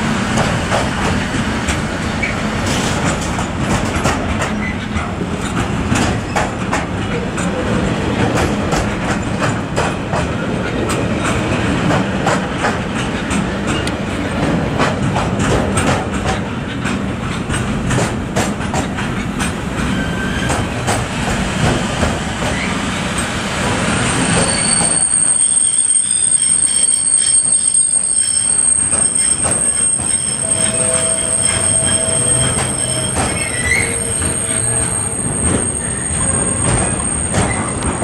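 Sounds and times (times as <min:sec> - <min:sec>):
train wheels clattering on rails: 0:00.0 - 0:25.7, 0:26.4 - 0:38.0
high-pitched wheel squeal: 0:24.1 - 0:38.0.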